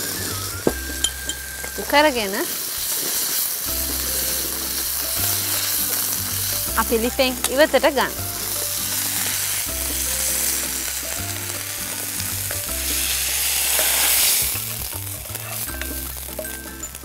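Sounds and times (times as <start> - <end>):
food sizzling in a frying pan: 0.0 - 17.0
soft background music: 0.0 - 17.0
spatula stirring in a pan: 8.4 - 17.0.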